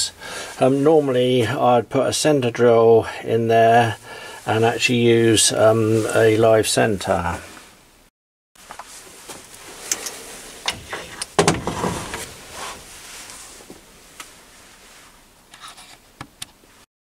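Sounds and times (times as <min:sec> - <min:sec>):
metal tooling clunking and scraping: 0:09.3 - 0:13.8.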